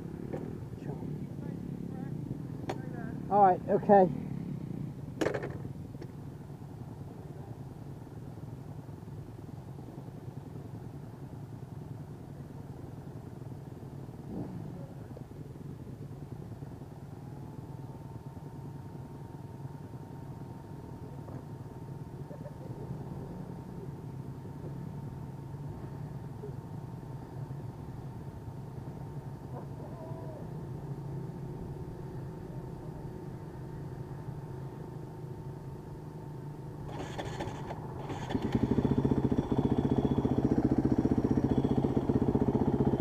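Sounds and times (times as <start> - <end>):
dirt bike engine idling: 0.0 - 43.0
faint steady high tone: 38.9 - 43.0.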